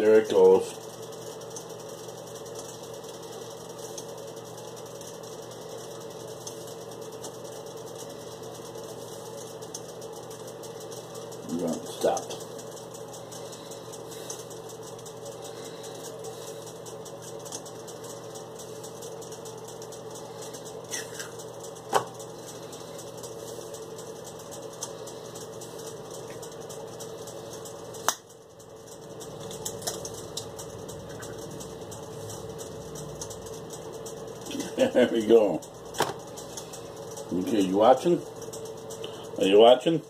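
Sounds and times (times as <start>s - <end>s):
machine hum: 0.0s - 40.0s
sharp clicks and knocks: 35.9s - 36.7s.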